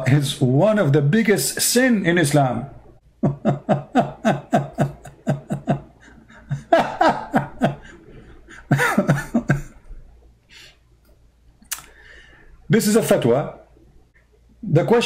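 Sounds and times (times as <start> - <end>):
man laughing: 3.2 - 9.9.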